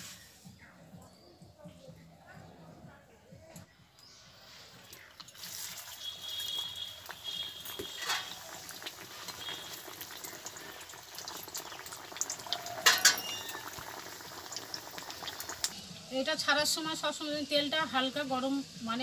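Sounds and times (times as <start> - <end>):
oil sizzling and crackling: 4.4 - 19.0.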